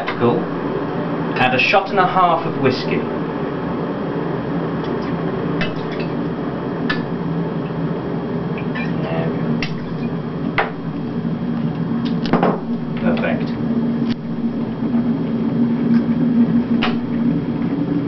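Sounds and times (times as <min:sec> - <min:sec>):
electric kettle heating: 0:00.0 - 0:18.0
glass clinking: 0:05.6 - 0:06.2.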